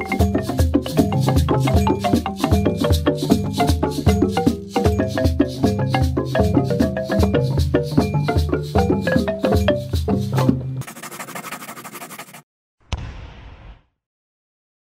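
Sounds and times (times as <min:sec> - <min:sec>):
xylophone-type mallet notes: 0:00.0 - 0:10.8
wood-block percussion: 0:00.0 - 0:12.2
shaker rattle: 0:00.0 - 0:12.4.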